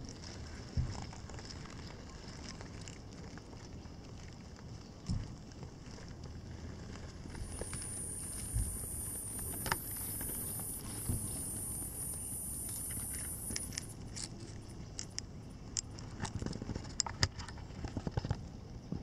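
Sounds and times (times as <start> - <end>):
high-pitched hiss: 7.3 - 14.0.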